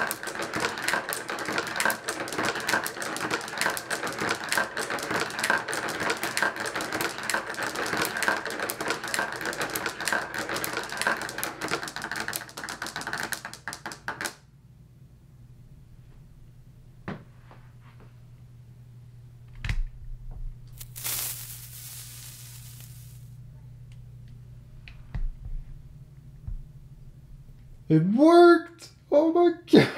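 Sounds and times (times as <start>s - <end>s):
marbles rattling along a track: 0.0s - 14.4s, 20.8s - 23.3s
low steady hum: 14.5s - 29.9s.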